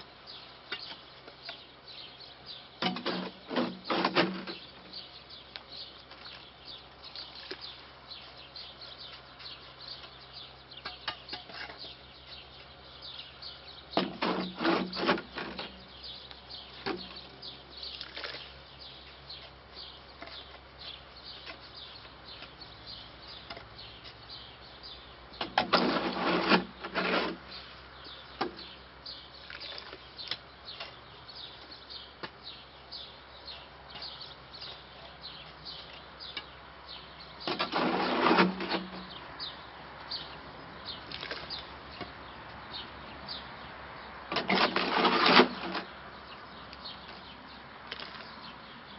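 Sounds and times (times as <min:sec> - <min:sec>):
small birds chirping: 0:00.0 - 0:48.9
shovel scraping concrete: 0:02.8 - 0:05.0, 0:10.8 - 0:12.8, 0:13.9 - 0:16.0, 0:17.8 - 0:19.6, 0:20.2 - 0:21.7, 0:25.4 - 0:27.8, 0:29.4 - 0:31.1, 0:37.4 - 0:39.2, 0:41.1 - 0:42.1, 0:44.3 - 0:45.9, 0:47.9 - 0:48.4.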